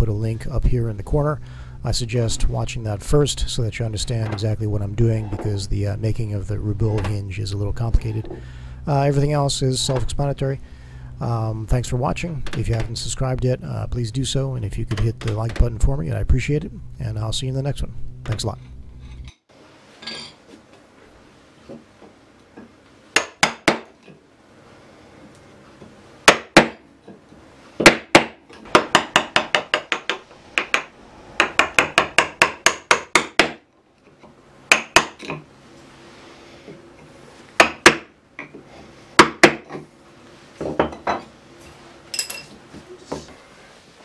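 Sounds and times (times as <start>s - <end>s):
mallet striking chisel: 23.2s - 23.9s, 26.3s - 26.8s, 27.8s - 33.6s, 34.7s - 35.4s, 37.6s - 38.5s, 39.2s - 39.8s.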